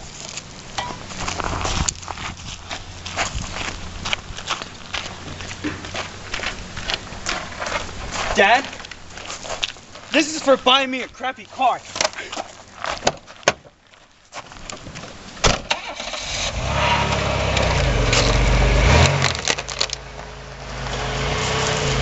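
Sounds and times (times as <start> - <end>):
car door opening and shutting: 15.4 - 19.5
car engine starting and revving: 15.6 - 22.0.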